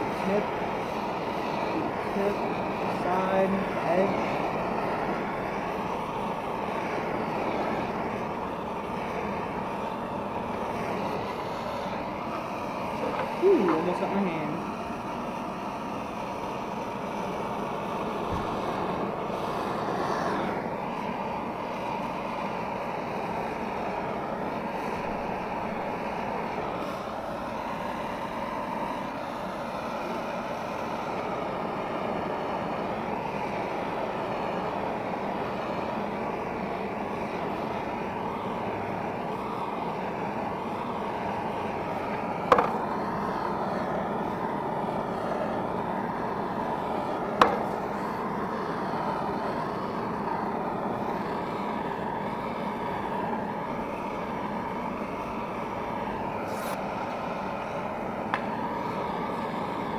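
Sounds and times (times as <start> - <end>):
blow torch hissing: 0.0 - 59.9.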